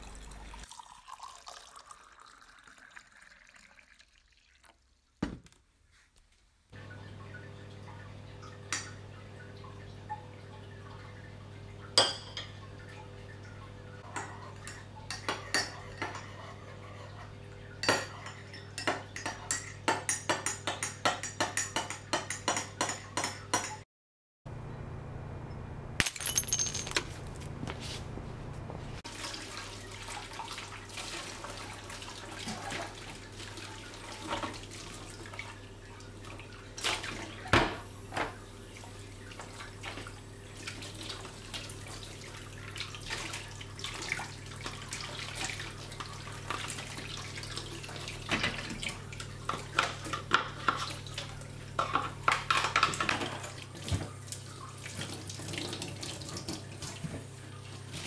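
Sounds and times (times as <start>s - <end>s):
dishes clattering and scrubbing: 11.9s - 13.0s, 14.0s - 23.8s, 44.1s - 54.2s
low steady hum: 24.5s - 29.0s
crockery clinking: 26.0s - 27.6s.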